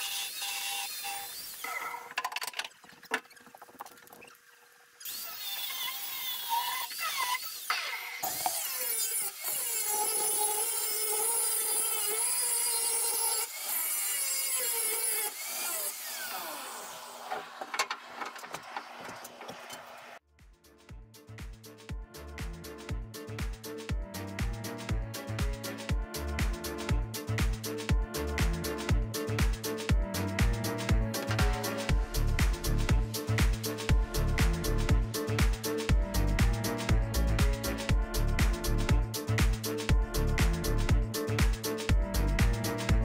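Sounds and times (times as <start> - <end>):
power tool cutting metal: 0.0 - 2.2, 5.0 - 20.2.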